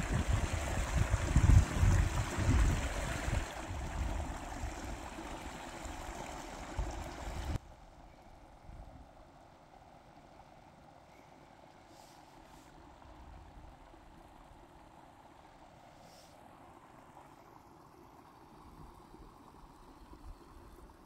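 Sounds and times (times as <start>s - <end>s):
wind rumbling on microphone: 0.0s - 7.6s
stream trickling and gurgling: 0.0s - 21.0s
faint outdoor ambience: 3.4s - 21.0s.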